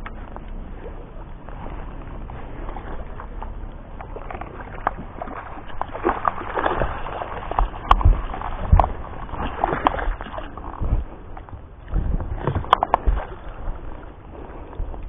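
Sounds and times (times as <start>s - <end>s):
fish thrashing and splashing: 0.0s - 15.0s
rain pattering on water: 1.2s - 11.6s.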